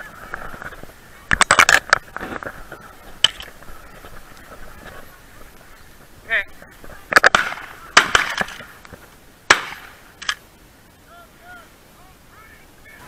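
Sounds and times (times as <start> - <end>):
shotgun shots: 7.1 - 8.6, 9.5 - 10.3.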